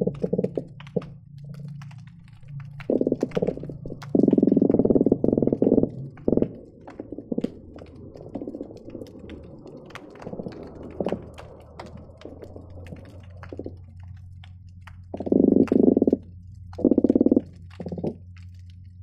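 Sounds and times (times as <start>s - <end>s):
fish croaking underwater: 0.0s - 19.0s
sharp clicks and pops: 0.0s - 19.0s
steady low hum: 0.0s - 19.0s.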